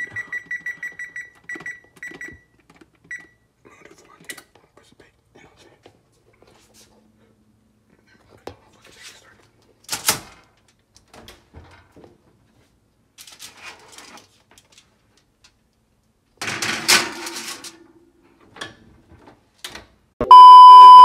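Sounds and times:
test-pattern tone beep: 0.0 - 2.3, 20.2 - 21.0
kitchen handling clatter: 16.4 - 17.8.

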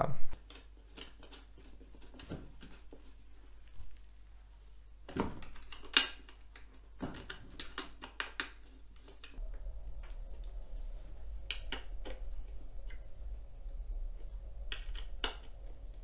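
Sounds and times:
low steady hum: 8.5 - 16.0.

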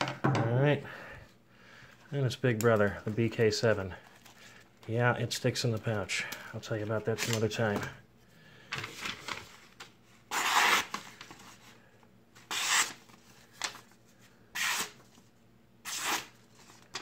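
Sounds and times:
knife slicing paper: 10.3 - 11.0, 12.5 - 13.0, 14.6 - 15.0, 15.8 - 16.4.

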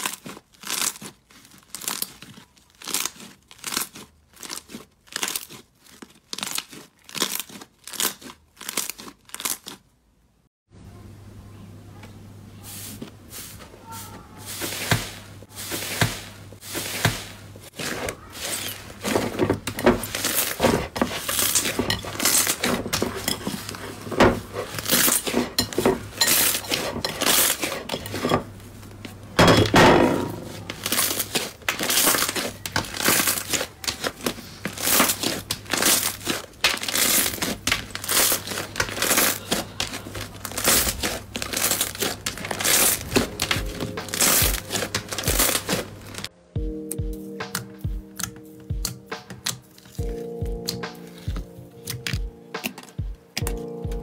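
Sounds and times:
slime crackling and popping: 0.0 - 9.9, 30.6 - 46.3
slime squelching: 0.0 - 9.9, 12.6 - 29.5, 30.3 - 46.3.

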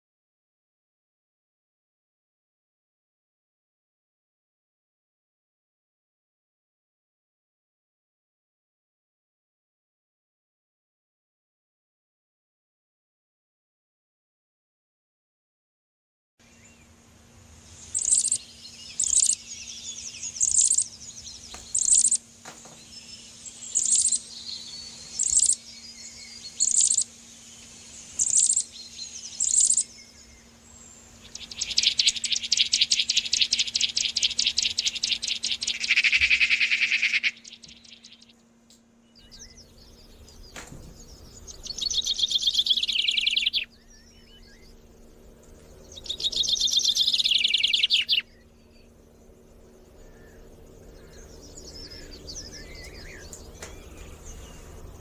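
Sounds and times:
songbird chirps: 16.4 - 55.0
songbird trills: 17.6 - 55.0.

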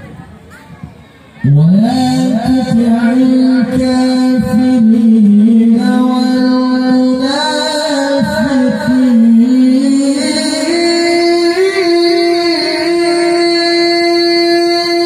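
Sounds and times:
man reciting melodically: 1.4 - 15.0.

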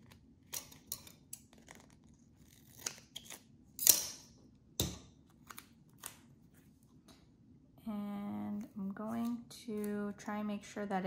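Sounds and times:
tape crackling: 0.0 - 3.5.

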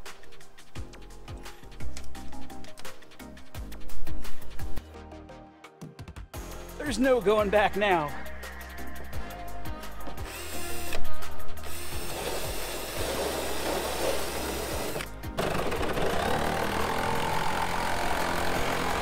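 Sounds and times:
background music: 0.0 - 19.0
cordless drill boring metal: 10.2 - 19.0
jigsaw cutting metal buzz: 10.2 - 19.0.

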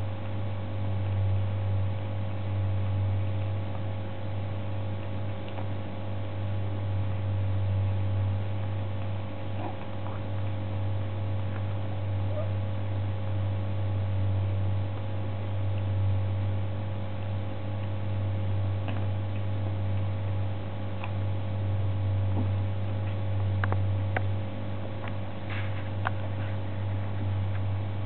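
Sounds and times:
low electrical hum: 0.0 - 28.0.

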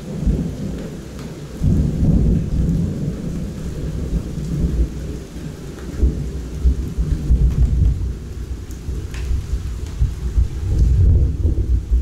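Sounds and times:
steady rain falling: 0.0 - 12.0
thunder rumbling: 0.0 - 12.0.

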